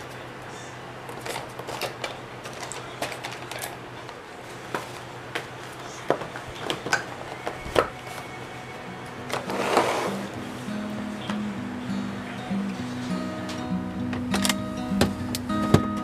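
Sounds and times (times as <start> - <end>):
plastic cups and boxes handled: 1.1 - 8.3.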